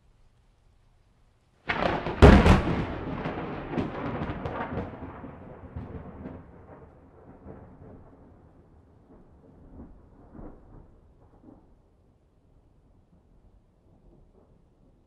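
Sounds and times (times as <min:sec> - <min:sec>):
thunder crackles: 0:01.6 - 0:11.9
thunder rumbling: 0:01.7 - 0:12.0.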